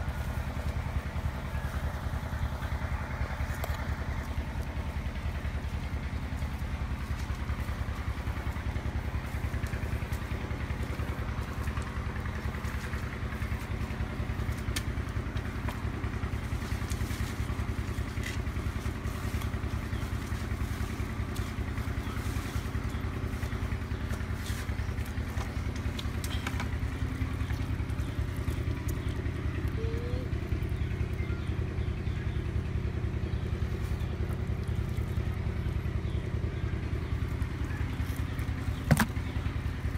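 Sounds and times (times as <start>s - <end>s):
engine droning: 0.0s - 39.9s
faint clicks and rustles: 2.8s - 29.8s.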